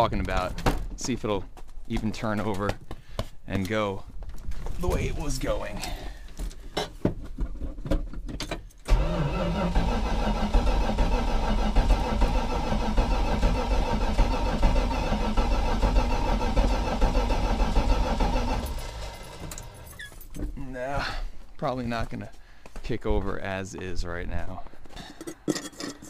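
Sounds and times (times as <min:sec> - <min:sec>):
starter cranking engine: 0:08.9 - 0:20.0.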